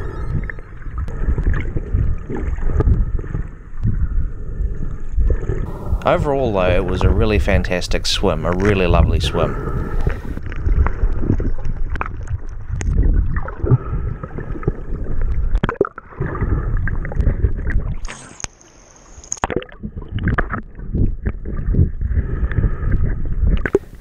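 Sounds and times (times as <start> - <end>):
muffled underwater rushing water: 0.0 - 24.0
underwater knocks and clicks: 8.5 - 9.3, 9.9 - 16.0, 19.4 - 24.0.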